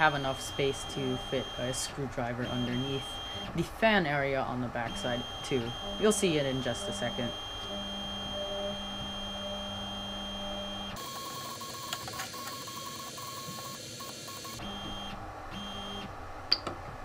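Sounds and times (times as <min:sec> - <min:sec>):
stepper motors whining: 0:00.0 - 0:03.7, 0:04.6 - 0:16.1.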